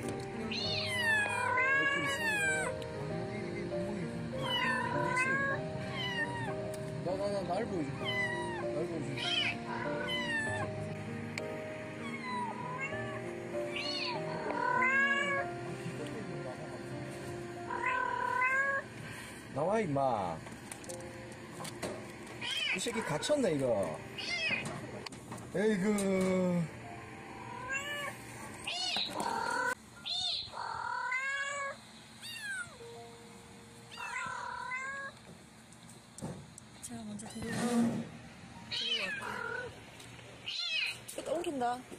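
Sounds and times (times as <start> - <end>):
background music: 0.0 - 18.8
kitten meowing: 0.4 - 2.8, 4.4 - 6.6, 8.0 - 10.7, 12.0 - 15.5, 17.7 - 18.8, 22.4 - 23.3, 24.2 - 24.6, 27.5 - 28.1, 28.7 - 32.8, 33.9 - 35.2, 38.7 - 39.8, 40.4 - 41.0.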